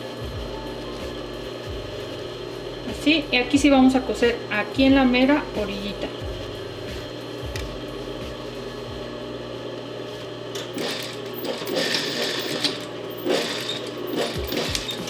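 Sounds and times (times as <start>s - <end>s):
sewing machine stitching: 10.6s - 15.0s.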